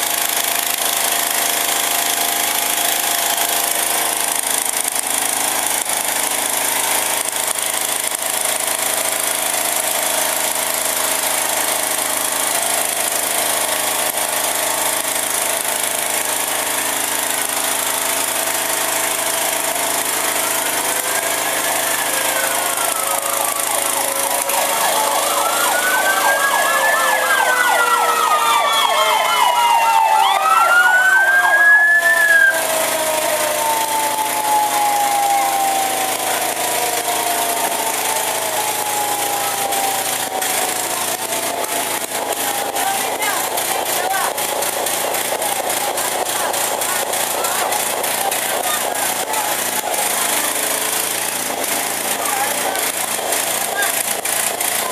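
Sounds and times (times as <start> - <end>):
fire truck sirens wailing: 0.0 - 54.9
fast yelping siren: 18.0 - 43.3.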